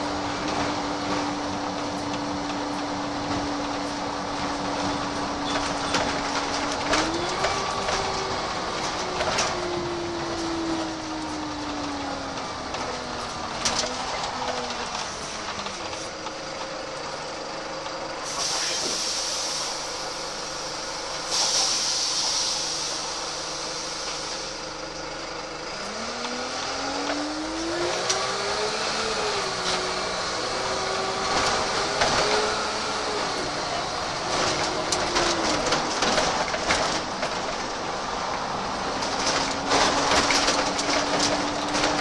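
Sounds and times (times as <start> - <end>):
bus diesel engine: 0.0 - 42.0
air brakes hissing: 18.2 - 24.8.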